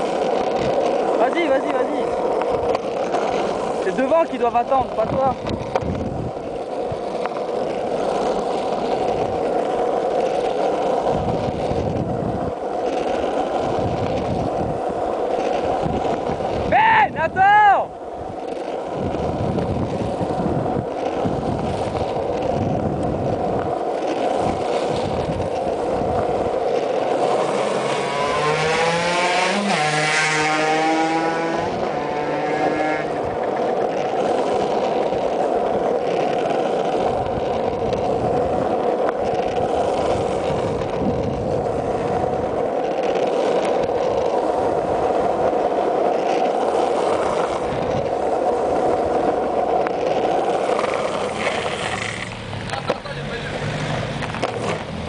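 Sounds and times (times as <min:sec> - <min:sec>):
wheels rolling on asphalt: 0:00.0 - 0:55.0.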